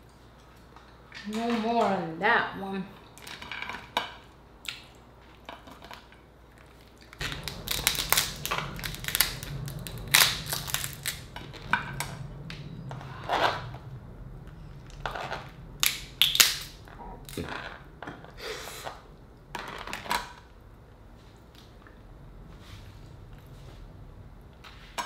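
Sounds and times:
crab shell cracking: 7.0s - 11.2s, 15.8s - 17.4s.

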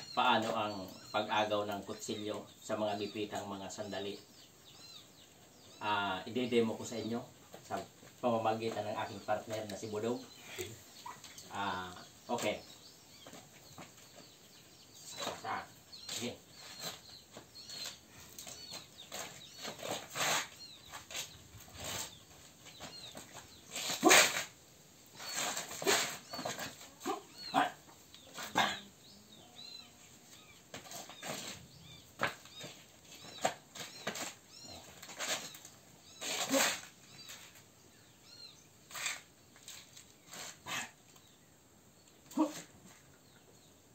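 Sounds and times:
flip-flop steps on concrete: 30.7s - 37.6s.

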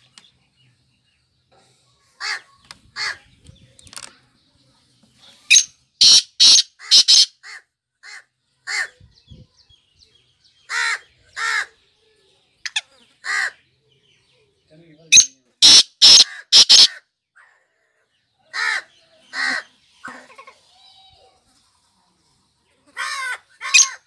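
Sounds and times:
bird calling scratchy notes: 5.3s - 7.3s, 15.1s - 17.0s.

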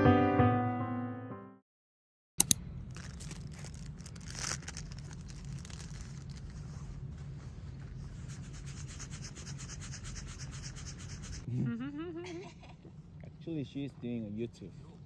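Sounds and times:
scratchy rubbing noise: 8.0s - 11.5s.

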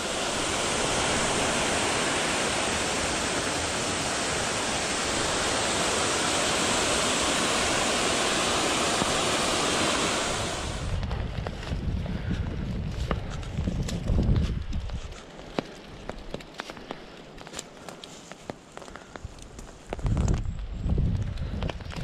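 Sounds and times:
mountain stream rushing: 0.0s - 11.0s.

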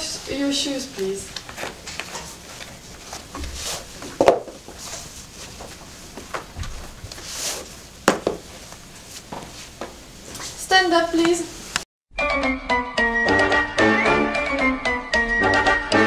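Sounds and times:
boots rustling and scuffing: 1.4s - 10.6s
boots knocking on tiled floor: 3.4s - 4.7s, 8.0s - 8.5s.

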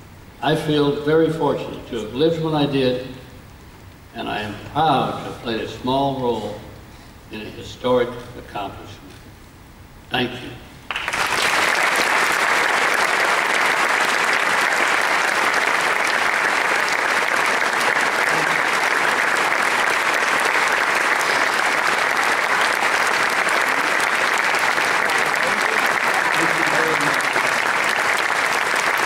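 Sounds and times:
audience applauding: 10.9s - 29.0s.

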